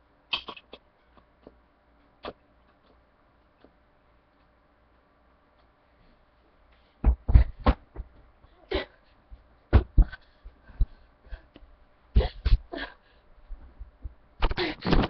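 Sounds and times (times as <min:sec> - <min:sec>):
dull thumps and knocks: 0:07.0 - 0:08.2, 0:09.7 - 0:11.0.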